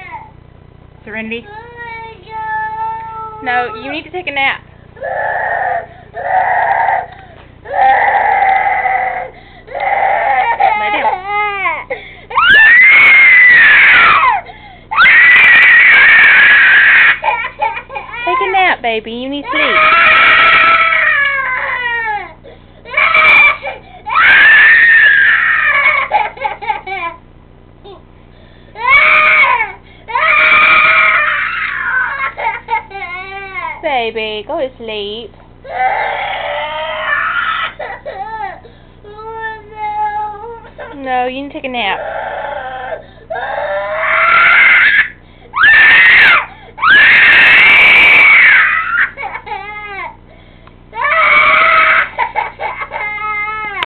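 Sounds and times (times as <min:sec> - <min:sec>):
toddler girl crying: 0:19.5 - 0:22.3, 0:22.9 - 0:27.2, 0:28.8 - 0:33.8, 0:35.7 - 0:41.0, 0:42.0 - 0:50.2, 0:51.0 - 0:53.9.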